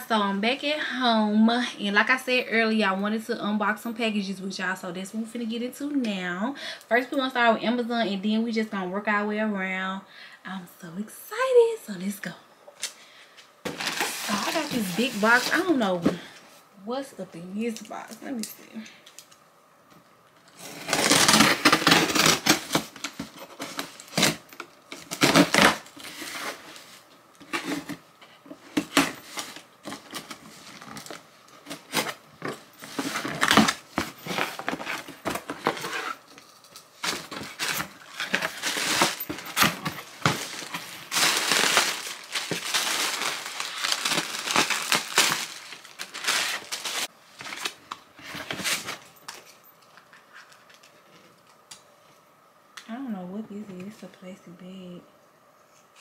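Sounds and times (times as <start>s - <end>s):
packaging crinkling and rustling: 13.7s - 16.3s, 20.4s - 51.6s.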